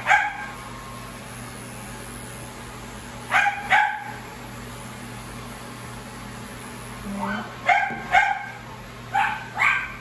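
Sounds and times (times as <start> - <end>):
dog barking: 0.0 - 0.6, 3.3 - 4.2, 7.6 - 10.0
hair clippers humming: 0.0 - 10.0.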